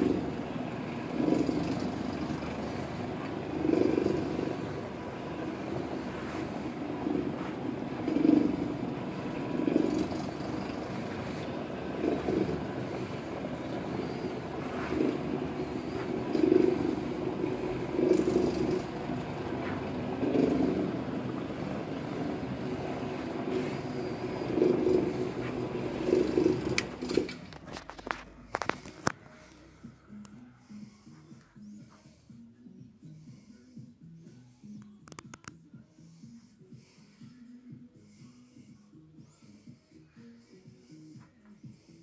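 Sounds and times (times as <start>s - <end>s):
carpet cleaning machine motor hum: 0.0s - 32.0s.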